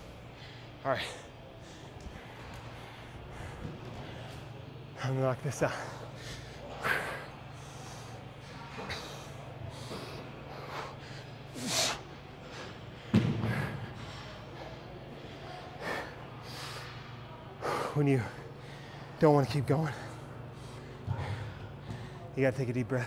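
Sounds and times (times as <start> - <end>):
steady low hum: 0.0 - 23.0
man breathing hard: 5.6 - 19.2, 19.8 - 22.3.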